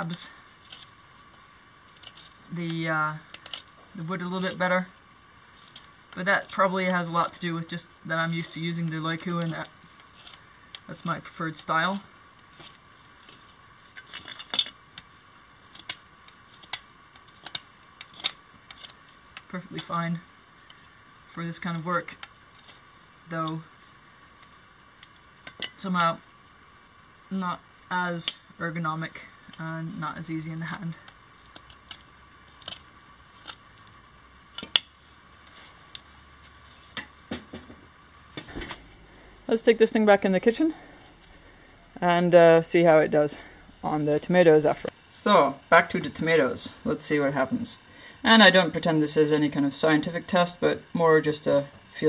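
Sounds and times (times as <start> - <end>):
knife shaving wood: 0.3 - 4.7, 5.4 - 25.6.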